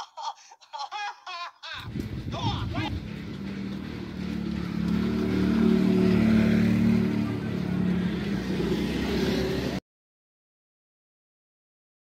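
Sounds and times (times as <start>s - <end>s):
vehicle engine passing: 1.9s - 9.8s.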